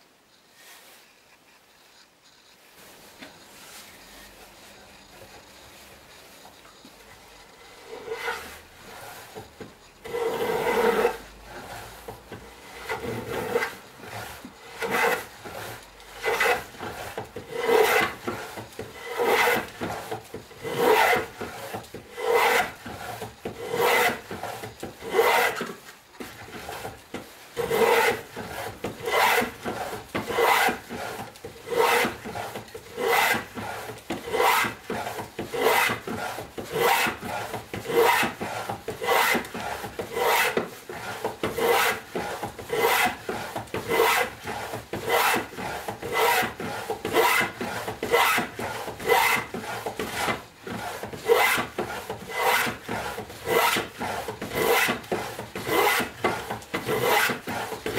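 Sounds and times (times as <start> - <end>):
plane shaving wood: 1.9 - 57.9.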